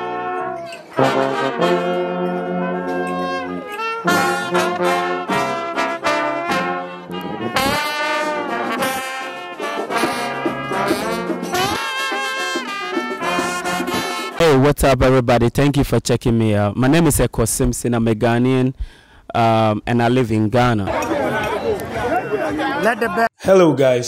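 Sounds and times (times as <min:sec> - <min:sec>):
brass music with trombones and trumpets: 0:00.0 - 0:15.2.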